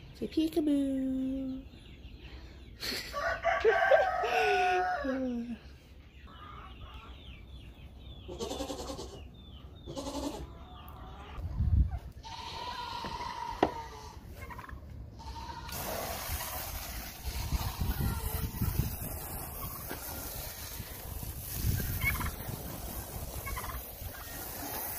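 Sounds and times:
goat bleating: 8.3 - 10.5, 12.2 - 14.2, 15.2 - 15.8
wind on microphone: 11.4 - 12.2, 16.8 - 24.1.

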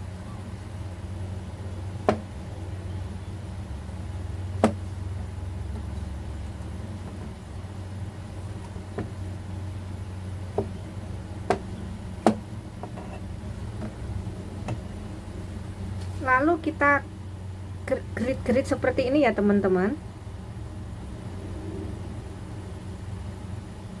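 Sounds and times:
low hum: 0.0 - 24.0
knife chopping on cutting board: 4.6 - 4.8, 11.5 - 13.2.

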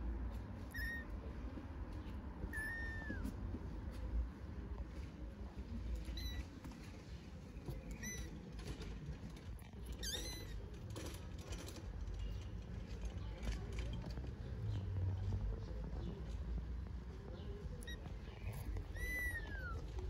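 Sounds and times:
kitten mewing: 0.6 - 1.2, 2.5 - 3.4, 9.8 - 10.6, 17.8 - 20.0.

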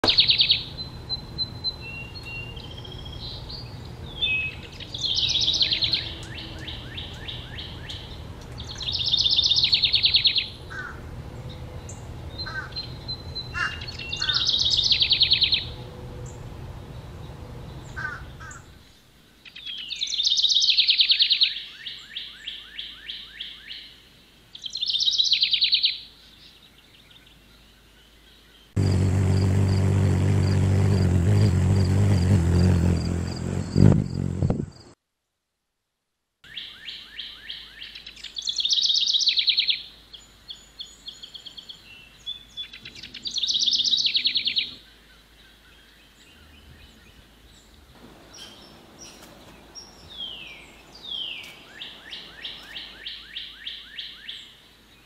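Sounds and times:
blue jay harsh calls: 1.8 - 11.1, 11.8 - 15.8, 17.8 - 18.9
low hum with high pulsing: 28.8 - 34.6.

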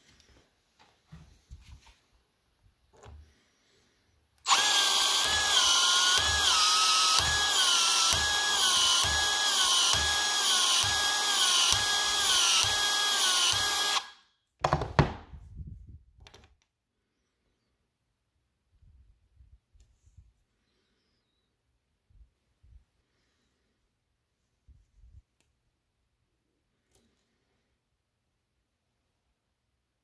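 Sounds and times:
cordless pipe expansion tool motor: 4.4 - 14.2.

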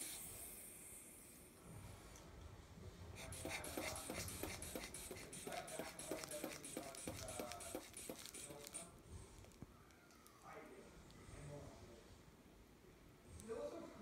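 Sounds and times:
rubber bulb being squeezed: 3.2 - 8.8.

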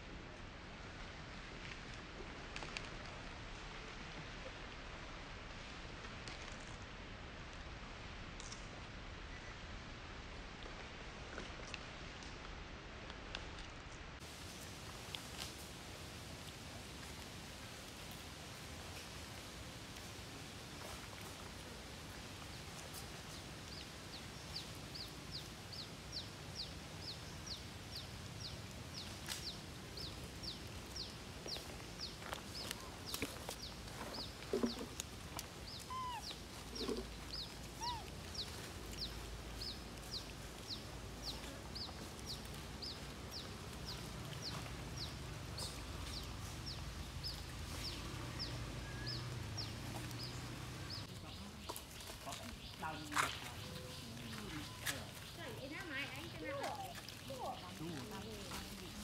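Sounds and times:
bird chirping: 35.6 - 58.7.

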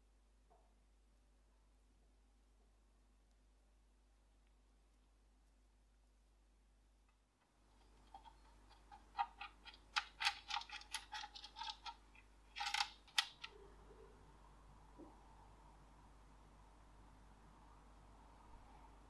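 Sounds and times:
small metal parts clicking: 7.8 - 13.6
metal parts rattling: 8.0 - 13.5.

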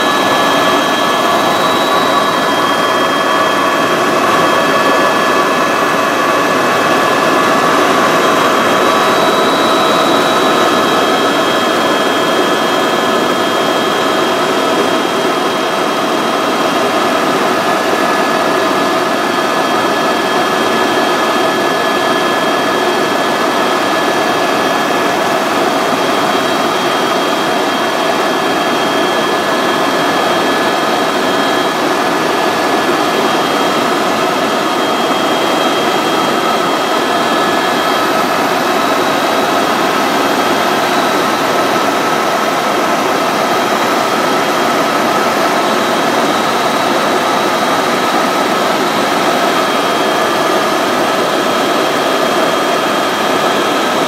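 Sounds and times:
constant high whine: 0.0 - 54.0
helicopter engine and rotor drone: 0.0 - 54.0.

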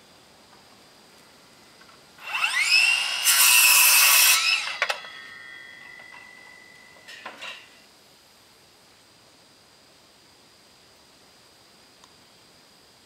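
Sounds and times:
saw cutting wooden plank: 2.2 - 6.0
circular saw whining: 2.2 - 7.8.

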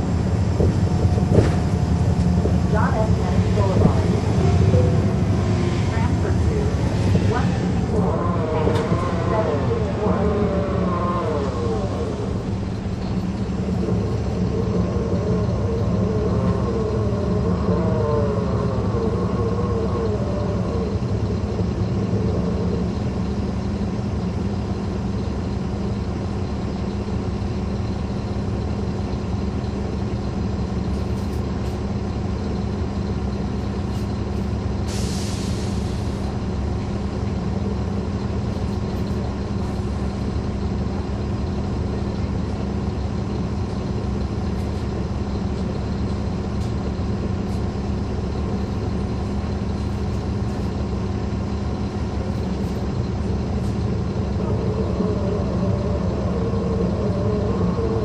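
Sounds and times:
bus diesel engine running: 0.0 - 58.0
engine whine: 0.0 - 58.0
air brake hiss: 34.9 - 36.2.

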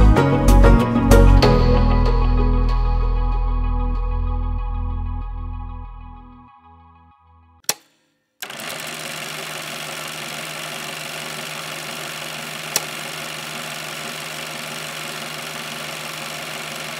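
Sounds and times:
film projector whirring: 8.4 - 16.9
projector click: 12.6 - 13.1.

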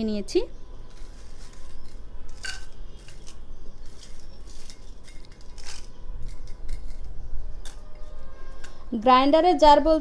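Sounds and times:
chillies clinking into blender jar: 0.9 - 7.8.

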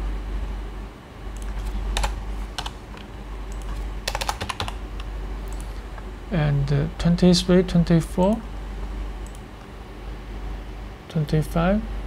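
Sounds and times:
computer keyboard typing: 1.4 - 5.8.

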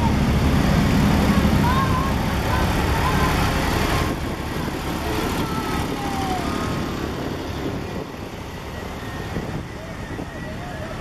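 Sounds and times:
tractor engine passing: 0.0 - 11.0.

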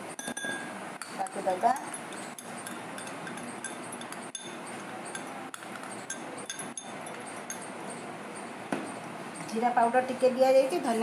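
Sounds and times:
glass bowls clinking: 0.2 - 8.1.

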